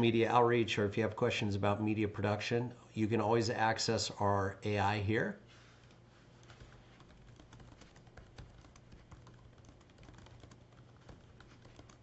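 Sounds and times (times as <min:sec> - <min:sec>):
low steady hum: 0:00.0 - 0:12.0
keyboard typing: 0:05.8 - 0:12.0.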